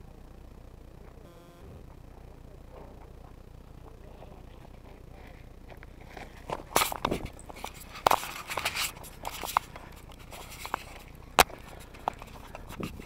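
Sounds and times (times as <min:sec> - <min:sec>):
camera handling rustling: 0:06.0 - 0:13.0.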